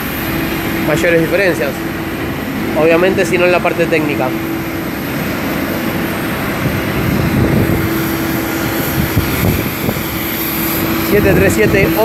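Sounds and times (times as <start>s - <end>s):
aircraft engine hum: 0.0s - 12.0s
thin high whine: 0.0s - 12.0s
broad rushing hiss: 4.9s - 12.0s.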